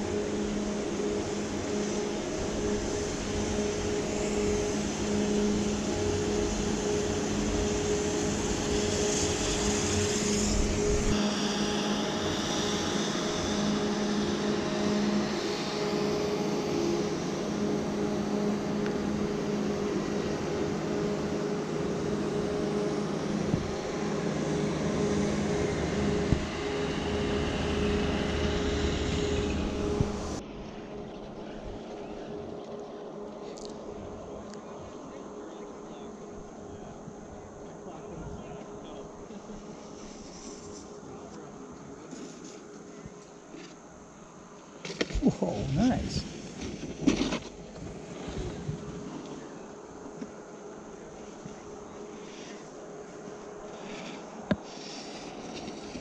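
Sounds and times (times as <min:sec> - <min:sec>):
rushing hiss: 0:00.0 - 0:17.6
machine hum: 0:00.0 - 0:56.0.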